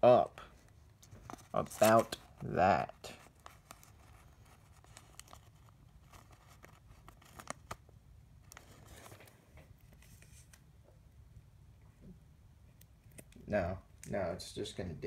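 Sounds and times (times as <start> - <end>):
card sliding into plastic sleeve: 1.1 - 2.5, 3.2 - 7.8.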